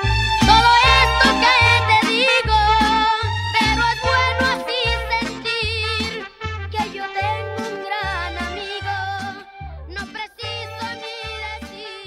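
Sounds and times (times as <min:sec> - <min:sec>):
violins with vibrato: 0:00.0 - 0:05.7
deep bass notes: 0:00.0 - 0:10.0
mariachi band playing: 0:00.0 - 0:12.0.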